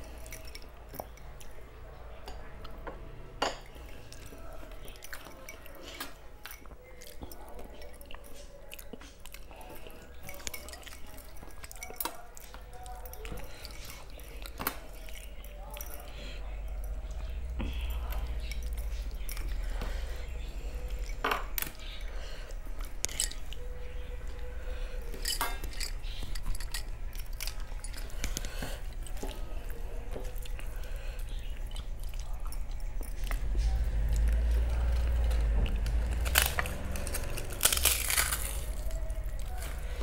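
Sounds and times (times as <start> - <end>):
chewing: 3.7 - 40.0.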